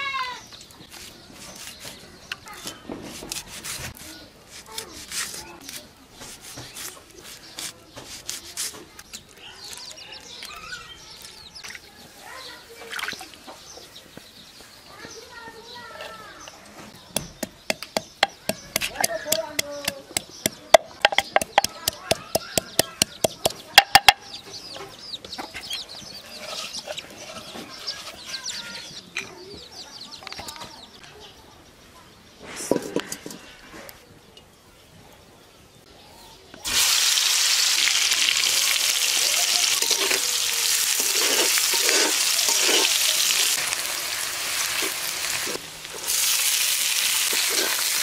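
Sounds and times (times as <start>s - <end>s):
birds chirping: 0.0s - 4.4s, 5.4s - 36.7s
clicks and taps preparing food: 17.1s - 24.2s
chickens clucking: 17.1s - 29.6s, 39.0s - 43.7s, 47.3s - 47.9s.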